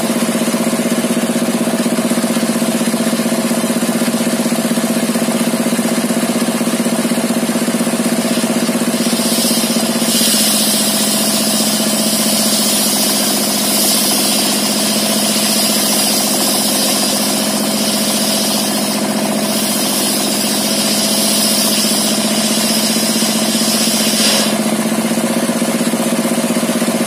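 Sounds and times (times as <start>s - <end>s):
diesel engine running: 0.0s - 27.0s
circular saw blade hissing: 7.9s - 25.2s.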